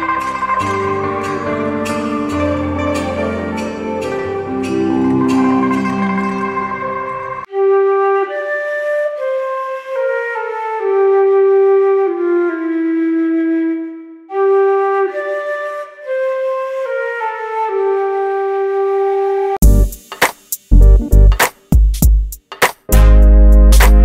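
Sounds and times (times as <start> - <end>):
slow melody of held notes: 0.0 - 8.2.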